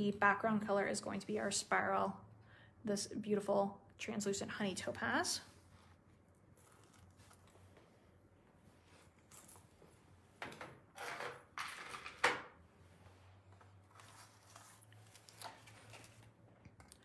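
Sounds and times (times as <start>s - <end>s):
rustling and scraping on a table: 6.6s - 16.3s.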